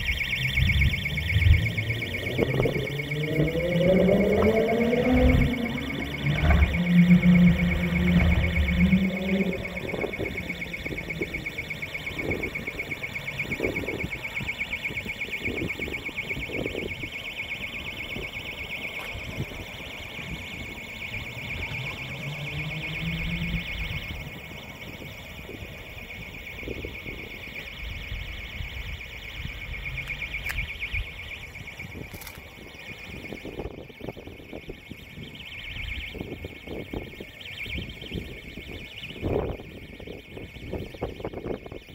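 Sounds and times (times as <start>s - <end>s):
alarm bell ringing: 0.0s - 41.9s
low rumbling: 0.5s - 12.7s.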